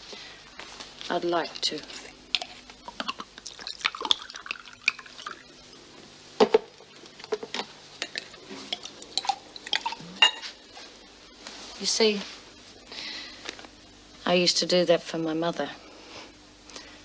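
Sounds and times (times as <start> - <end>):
liquid pouring and splashing: 2.3 - 5.5.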